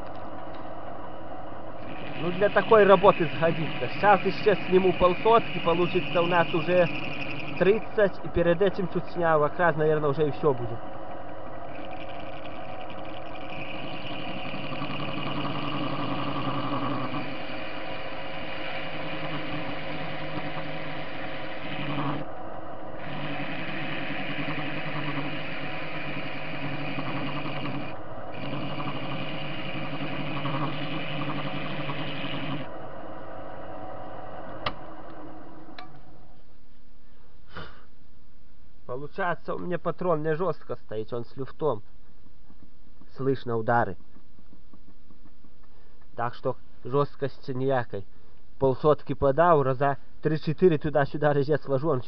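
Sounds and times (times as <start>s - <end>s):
machine hum: 0.0s - 40.5s
lathe cutter whine and scrape: 0.8s - 36.1s.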